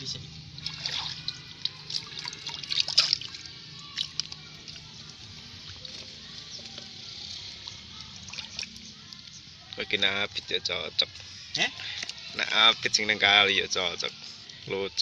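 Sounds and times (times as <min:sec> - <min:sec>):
water splashing and sloshing: 0:00.4 - 0:09.3
water dripping: 0:00.5 - 0:09.9.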